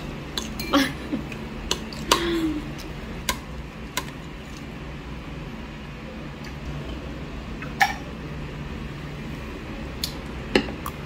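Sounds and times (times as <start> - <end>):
tableware clinking: 0.4 - 0.9.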